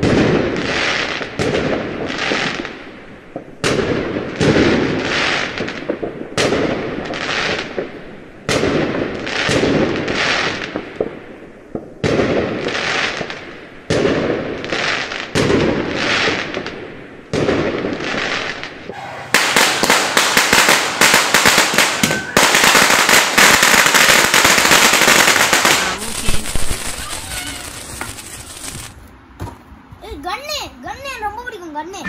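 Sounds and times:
fireworks bangs: 0.0 - 30.2
fireworks crackling hiss: 4.2 - 29.2.

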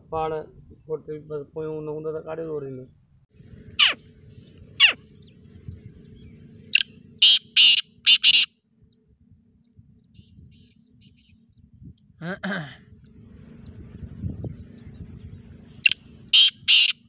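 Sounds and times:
francolin calling: 3.7 - 9.1, 9.7 - 11.6, 14.7 - 17.0.

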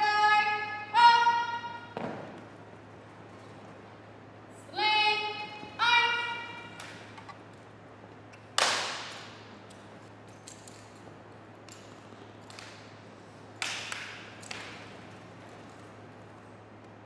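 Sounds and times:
person shouting command: 0.0 - 1.8, 4.7 - 6.7.

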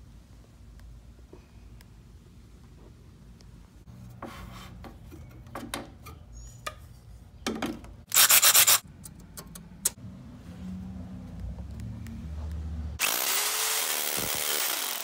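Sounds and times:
scraping and rubbing handling noise: 3.9 - 9.7.

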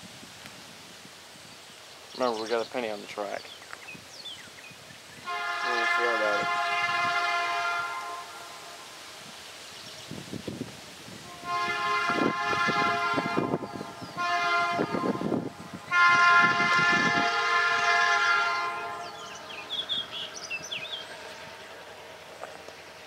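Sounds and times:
train horn blasts: 5.2 - 9.2, 11.2 - 21.8.

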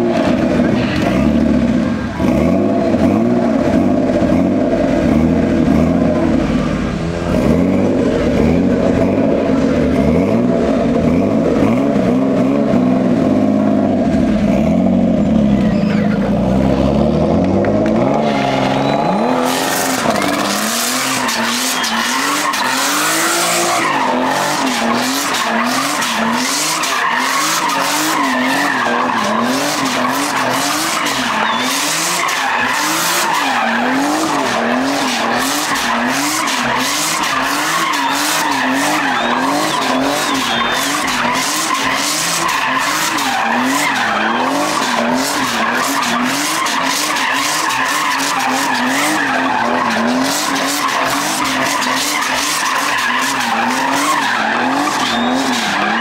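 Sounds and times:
car engine revving hard: 0.0 - 56.0
tyres squealing: 18.0 - 56.0.

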